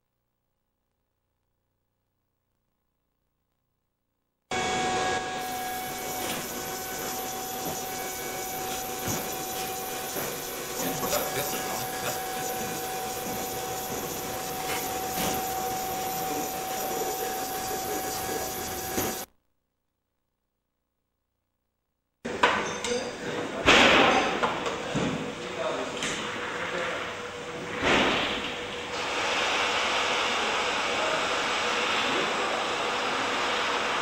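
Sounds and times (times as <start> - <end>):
factory machinery hum: 4.5 - 19.3, 23.6 - 34.0.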